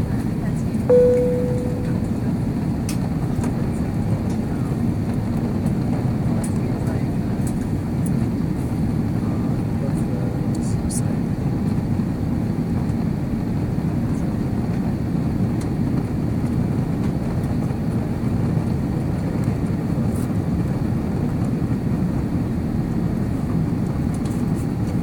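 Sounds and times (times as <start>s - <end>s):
airplane cabin engine rush: 0.0s - 25.0s
faint steady hum: 0.9s - 2.3s.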